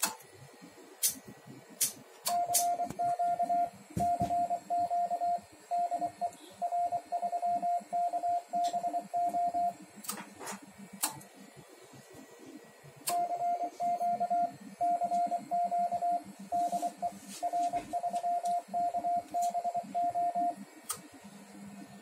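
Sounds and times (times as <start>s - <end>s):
morse code tone: 2.3s - 9.8s, 13.1s - 20.6s.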